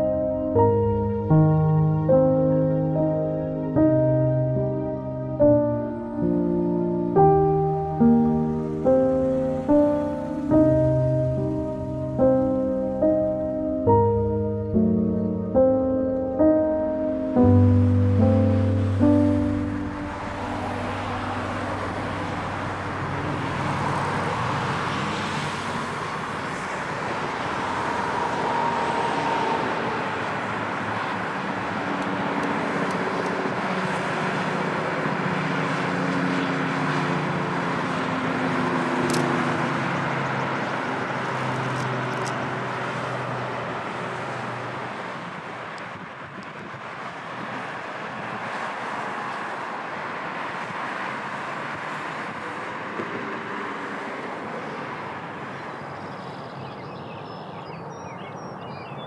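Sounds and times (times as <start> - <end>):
cars passing on a road: 0.0 - 59.0.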